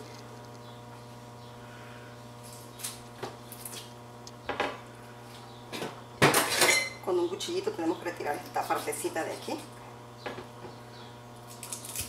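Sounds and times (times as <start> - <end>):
steady low hum: 0.0 - 12.0
corn husk rustling and tearing: 11.4 - 12.0.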